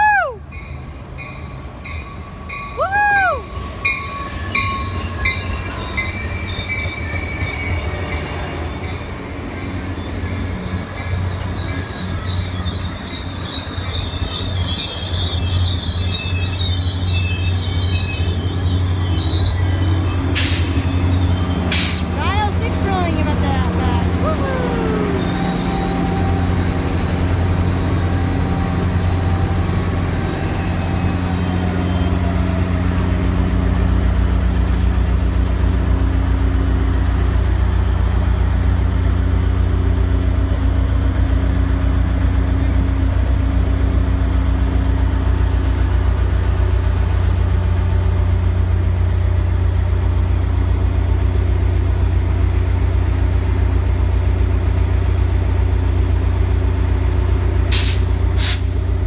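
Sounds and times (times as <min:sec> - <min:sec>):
diesel locomotive engine humming: 0:00.0 - 0:59.0
faint high squeal: 0:03.2 - 0:22.0, 0:22.7 - 0:32.9.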